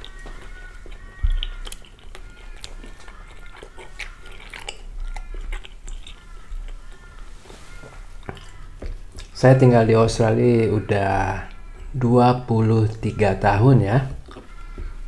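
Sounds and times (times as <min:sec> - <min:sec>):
chewing with mouth clicks: 0:00.0 - 0:09.4, 0:14.1 - 0:15.0.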